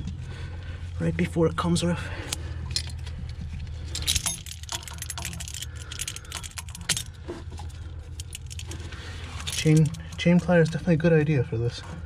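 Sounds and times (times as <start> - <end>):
steady low hum: 0.0 - 12.0
metal hand tools clinking: 3.9 - 7.2, 8.1 - 10.3.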